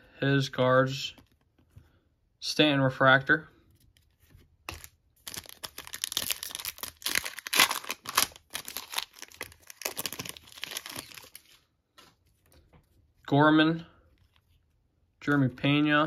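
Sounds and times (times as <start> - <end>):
foil wrapper tearing and crinkling: 4.7 - 11.6.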